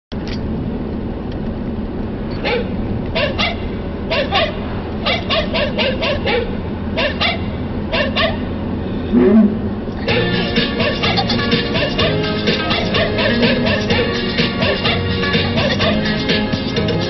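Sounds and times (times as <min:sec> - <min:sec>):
car engine and road noise: 0:00.1 - 0:17.0
dog barking: 0:02.4 - 0:08.5.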